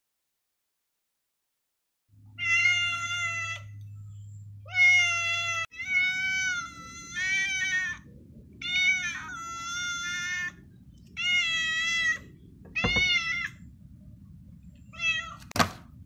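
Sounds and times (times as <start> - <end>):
cat meowing: 2.3 - 3.8, 4.6 - 13.6, 14.9 - 15.5.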